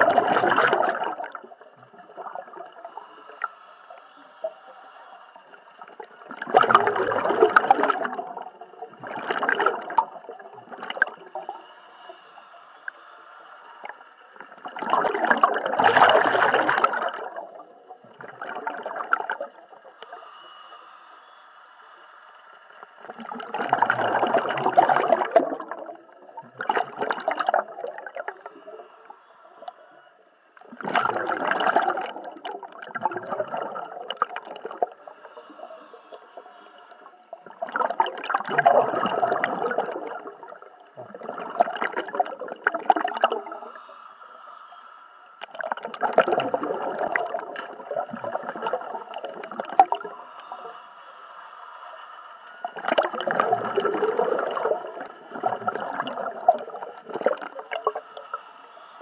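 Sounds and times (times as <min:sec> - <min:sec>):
faint steady hum: 0:00.0 - 0:59.0
regulator exhaust bubbles bursting: 0:30.6 - 0:35.0, 0:37.4 - 0:43.4.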